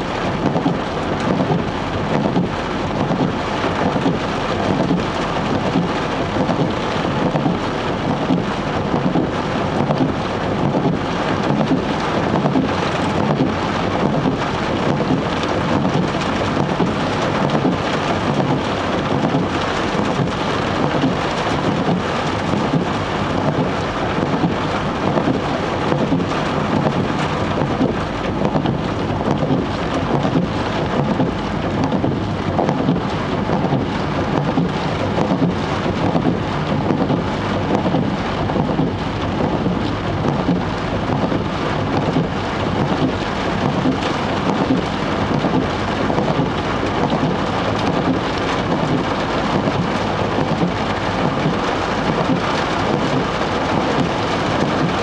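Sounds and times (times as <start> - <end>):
heavy rain on car roof: 0.0 - 55.0.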